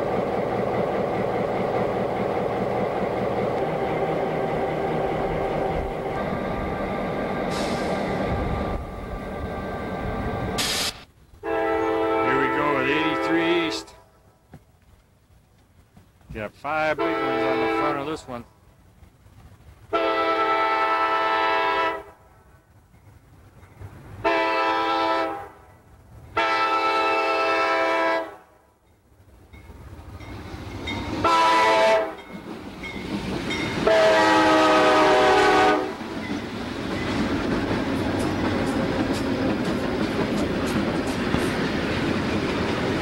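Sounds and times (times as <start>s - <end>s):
train rumbling past: 0.0s - 43.0s
locomotive air horn blasts: 11.4s - 14.0s, 17.0s - 18.0s, 19.9s - 22.2s, 24.2s - 25.6s, 26.4s - 28.4s, 31.2s - 32.2s, 33.8s - 36.0s
wheels clicking over rails: 36.0s - 43.0s.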